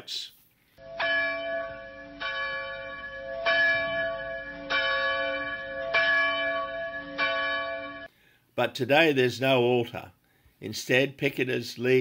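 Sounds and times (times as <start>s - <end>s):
church bell tolling: 0.8s - 8.1s.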